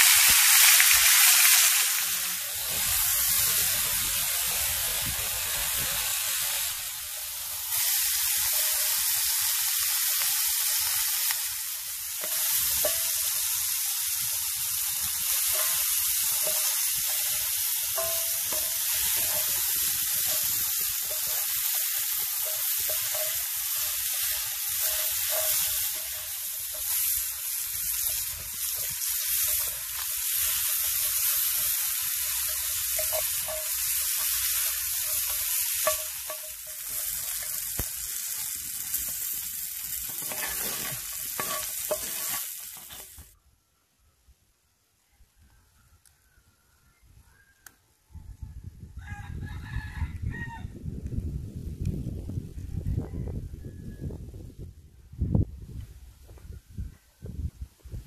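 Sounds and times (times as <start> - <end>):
food sizzling in hot oil: 0.0 - 43.4
wooden spatula stirring: 40.0 - 43.2.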